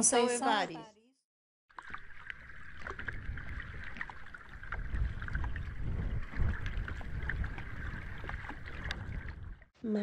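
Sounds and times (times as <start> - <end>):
wind on microphone: 2.8 - 9.7.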